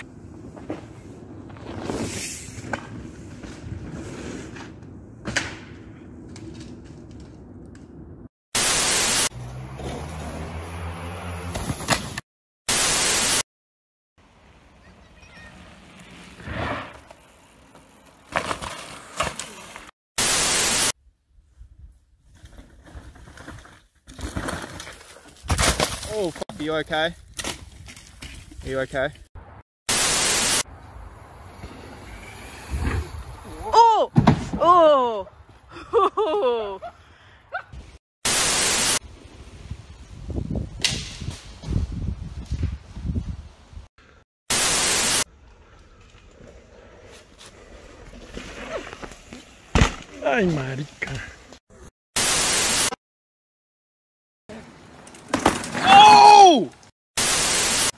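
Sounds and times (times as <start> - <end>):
burst of static hiss: 8.6 - 9.3, 12.7 - 13.4, 20.2 - 21.0, 29.9 - 30.6, 38.2 - 39.0, 44.5 - 45.3, 52.2 - 53.0, 57.2 - 57.9
loud static hiss: 29.9 - 30.6, 38.3 - 39.0, 44.5 - 45.3, 57.2 - 57.9
man shouting: 33.6 - 35.3, 55.8 - 56.7.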